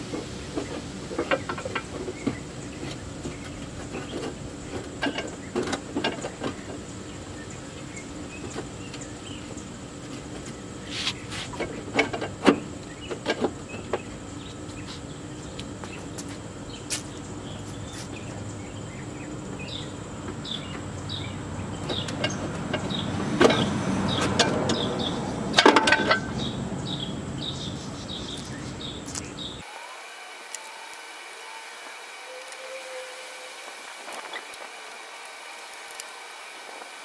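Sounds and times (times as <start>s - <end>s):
metal clanks of hand tools: 25.5s - 26.4s.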